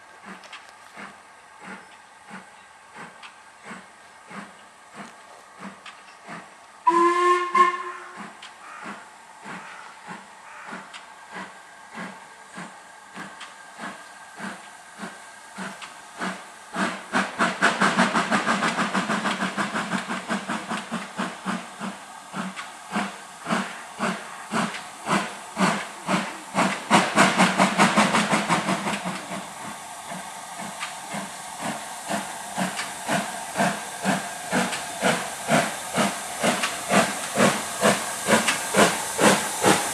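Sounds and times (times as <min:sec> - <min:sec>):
hissing steam: 0:00.0 - 0:39.9
steam locomotive exhaust beats: 0:00.0 - 0:39.9
steam locomotive whistle: 0:06.8 - 0:08.3.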